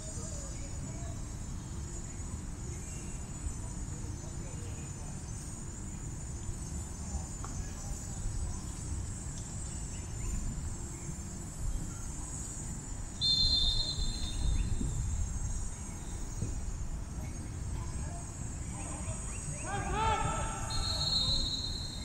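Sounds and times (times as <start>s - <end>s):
crickets chirring: 0.0s - 22.0s
shrill whistle: 13.2s - 15.2s, 20.7s - 22.0s.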